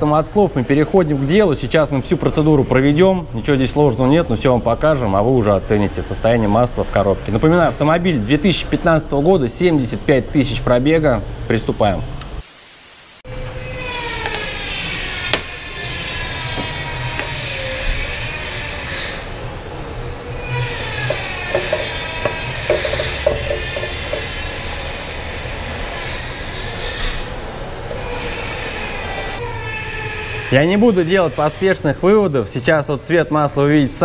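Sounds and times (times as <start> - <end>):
machine whining: 13.3 - 26.4.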